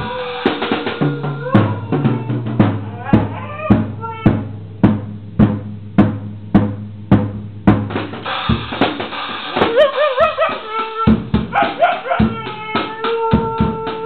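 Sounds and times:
dog howling: 0.0 - 4.5, 9.8 - 14.0
drum kit steady beat: 0.0 - 14.0.

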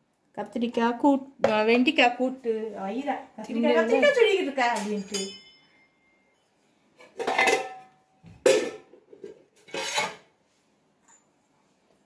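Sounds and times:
steel dishes clinking: 4.6 - 5.9, 7.0 - 8.9
metallic ring: 4.8 - 6.6.

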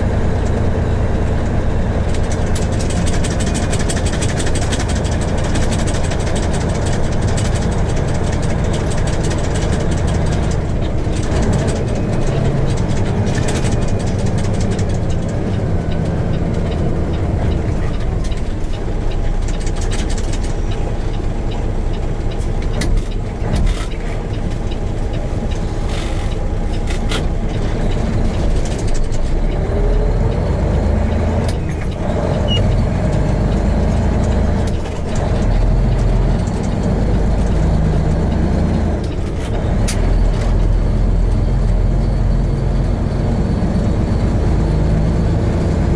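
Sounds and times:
truck diesel engine rumble: 0.0 - 45.9
clicks and rattles: 2.0 - 20.7, 26.7 - 29.7, 30.4 - 41.8.

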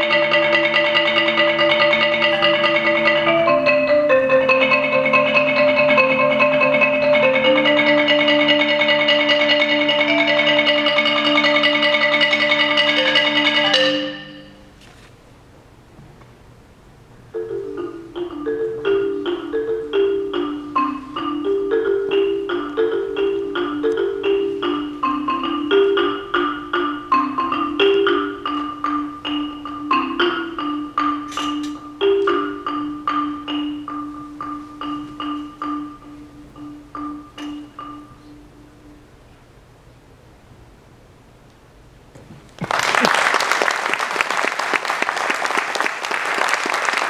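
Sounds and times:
solo marimba: 0.0 - 14.7, 17.3 - 39.3.

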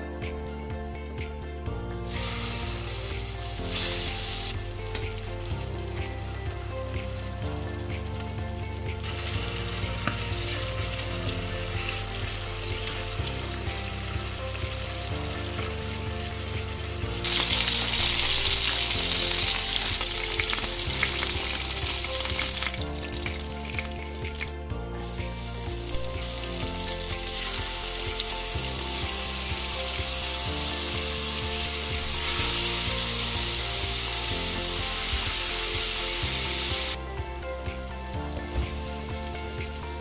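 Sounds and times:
quiet background music: 0.0 - 40.0
meat and onion sizzling in a pan: 2.1 - 4.6, 9.0 - 23.7, 25.0 - 37.0.

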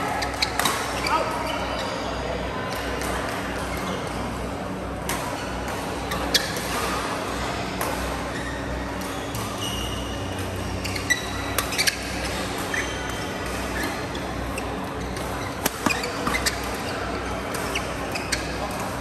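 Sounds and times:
low hall hum: 0.0 - 19.0
shoes squeaking on court: 0.1 - 2.2, 5.2 - 7.0, 8.3 - 19.0
racket hitting shuttlecock: 15.2 - 16.8.

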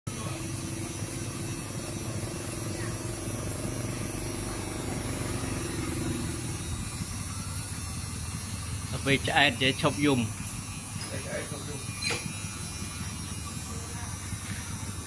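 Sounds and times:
small engine running: 0.1 - 15.0.

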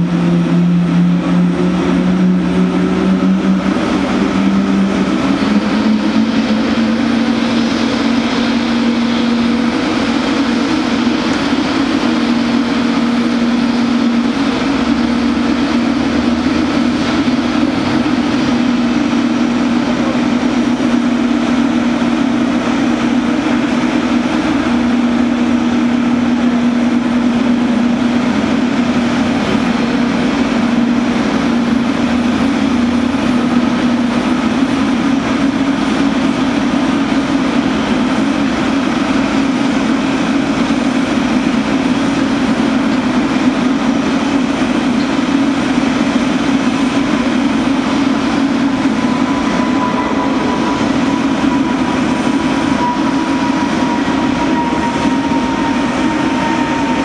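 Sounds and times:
jet engines running: 0.0 - 57.0
thin whine: 46.2 - 57.0.

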